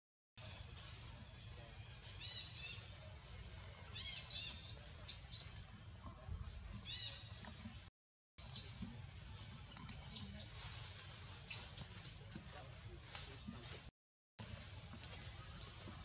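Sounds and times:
baby monkey squeaking: 8.4s - 8.8s, 9.7s - 10.6s, 11.5s - 12.2s.

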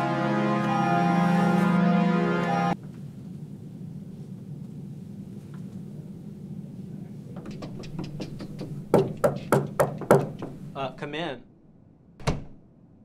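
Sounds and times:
low room hum: 1.9s - 13.0s
knocking on wooden door: 7.4s - 10.6s.

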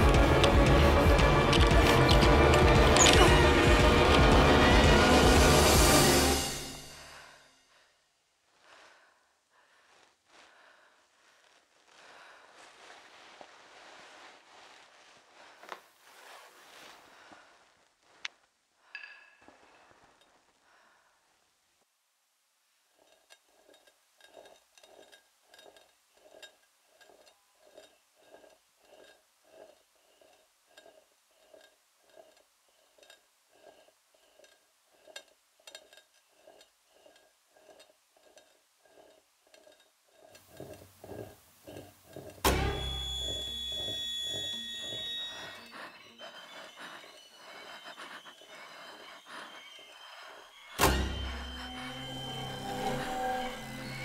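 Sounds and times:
soft metallic clinking: 18.8s - 20.5s, 22.8s - 54.0s
high ringing: 42.5s - 54.0s.

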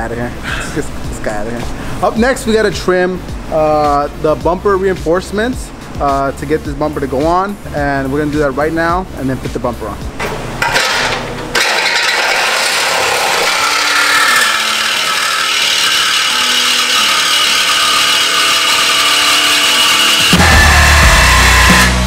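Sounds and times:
loud bass-heavy music: 0.4s - 10.2s, 19.5s - 22.0s
reciprocating saw cutting: 11.6s - 22.0s.

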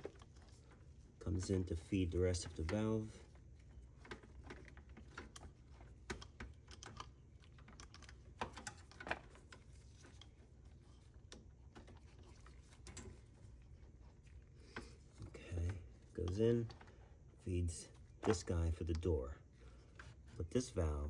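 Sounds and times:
low steady hum: 0.0s - 21.0s
small clicks and taps: 2.4s - 13.4s.

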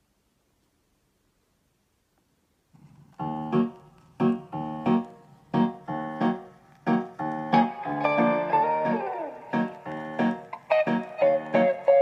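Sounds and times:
electric piano chords: 3.2s - 12.0s.

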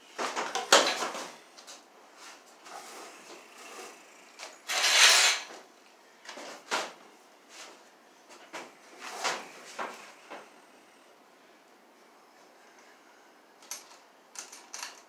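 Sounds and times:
cable scraping: 2.2s - 5.6s.

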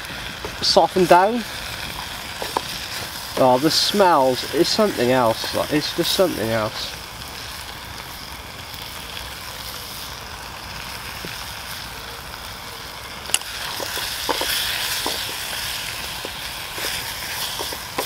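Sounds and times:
greens sizzling in a frying pan: 0.0s - 18.0s
stick knocking against pan: 13.7s - 15.5s.

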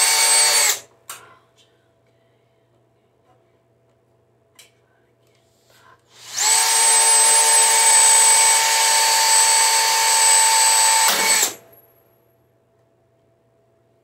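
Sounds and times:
cordless drill running: 0.0s - 0.8s, 6.2s - 11.6s.

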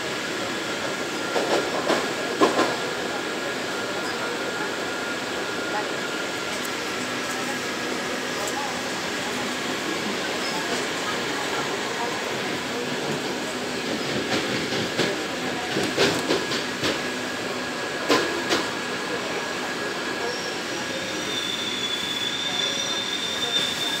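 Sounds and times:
train running in tunnel: 0.0s - 24.0s
high-pitched wheel squeal: 20.3s - 24.0s.

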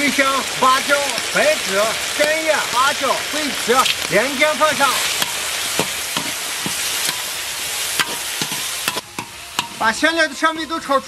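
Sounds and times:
spices sizzling in hot oil: 0.0s - 11.0s
metal spatula scraping wok: 4.9s - 10.4s.

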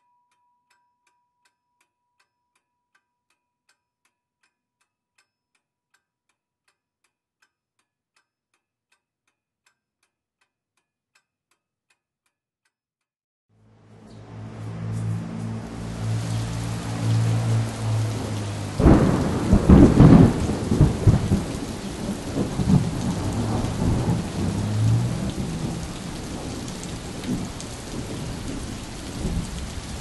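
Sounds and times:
loud rushing noise: 13.8s - 28.2s.

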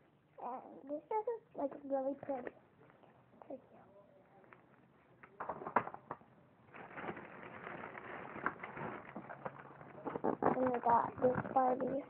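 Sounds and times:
objects rustling: 5.4s - 12.0s.

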